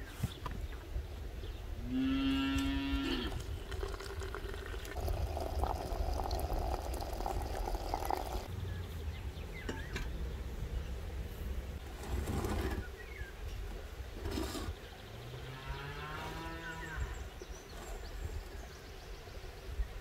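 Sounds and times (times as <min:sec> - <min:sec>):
cow mooing: 0:01.9 - 0:03.4, 0:15.5 - 0:17.1
hot water pouring into teapot: 0:03.2 - 0:08.5
bird chirp: 0:08.1 - 0:11.1.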